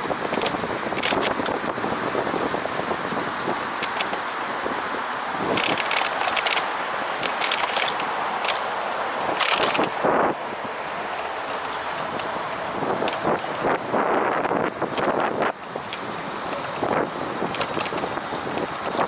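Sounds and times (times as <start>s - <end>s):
bicycle clicks and rattles: 0.0s - 1.7s, 3.8s - 4.4s, 5.5s - 10.0s, 14.9s - 19.0s
wind and bicycle tyre noise: 0.0s - 19.0s.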